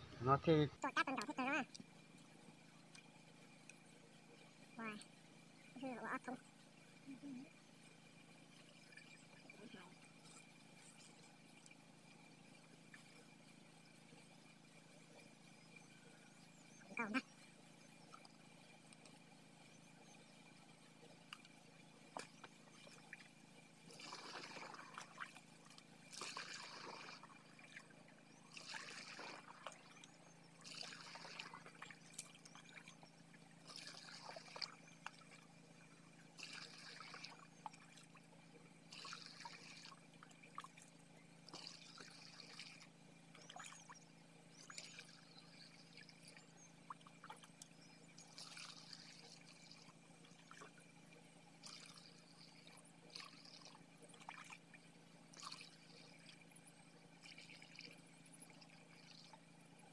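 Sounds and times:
liquid pouring into tank: 24.0s - 25.2s, 26.1s - 27.4s, 36.4s - 37.8s.

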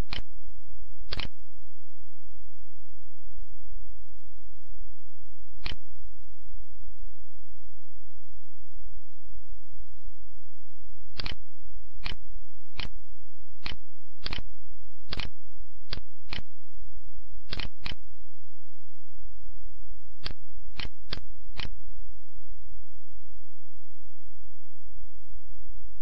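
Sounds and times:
computer mouse and keyboard clicks: 0.0s - 0.3s, 1.1s - 1.4s, 5.6s - 5.8s, 11.2s - 11.4s, 12.0s - 12.2s, 12.8s - 13.0s, 13.6s - 14.5s, 15.1s - 16.5s, 17.5s - 18.0s, 20.2s - 21.8s
low electrical hum: 0.0s - 26.0s.

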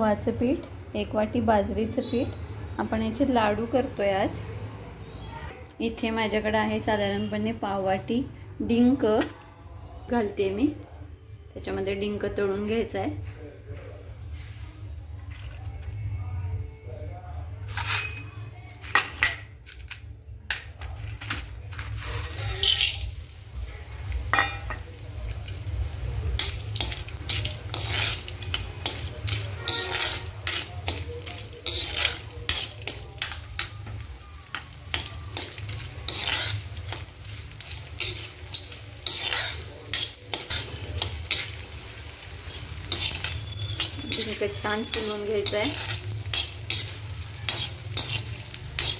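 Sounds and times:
steel spoon scraping a pan: 17.6s - 20.0s, 20.6s - 48.9s
gum sizzling in hot ghee: 22.0s - 48.9s.

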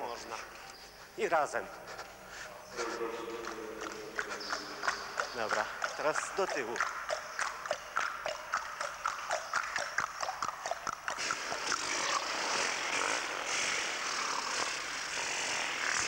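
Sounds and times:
sharp ringing clicking knocks: 3.4s - 11.0s.

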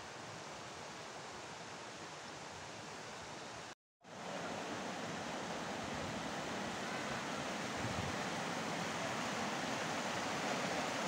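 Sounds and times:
stream rushing over stones: 0.0s - 11.0s.

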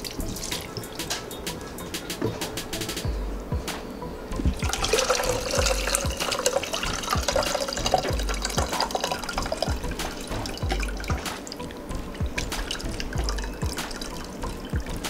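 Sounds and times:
water splashing into strainer: 4.6s - 15.0s.

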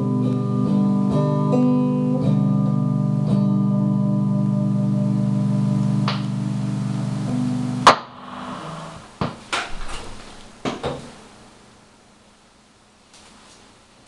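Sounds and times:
electric guitar chord ringing: 0.0s - 9.2s
sharp loud knock: 7.8s - 9.9s.

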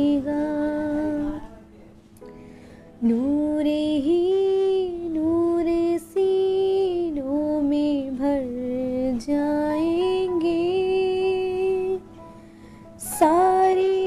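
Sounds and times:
singer breathing: 2.2s - 3.0s, 12.3s - 13.0s.

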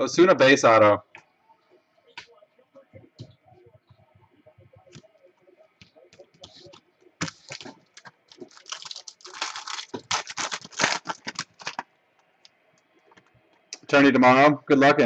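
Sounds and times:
foil wrapper crinkling: 7.2s - 11.9s.

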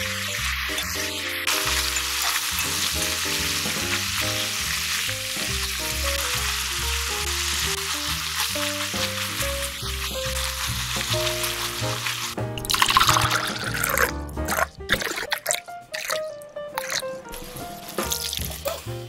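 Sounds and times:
metal tongs stirring meat: 0.0s - 15.1s
pork sizzling in a pan: 0.0s - 19.0s.

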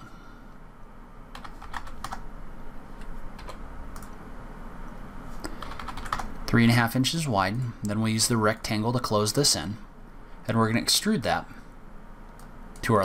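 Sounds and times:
keyboard keys tapping: 1.3s - 2.2s, 5.5s - 6.3s.

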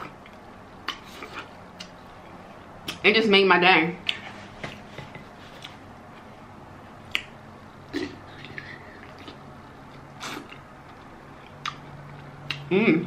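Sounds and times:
wet lip smacks and clicks: 7.1s - 7.4s.

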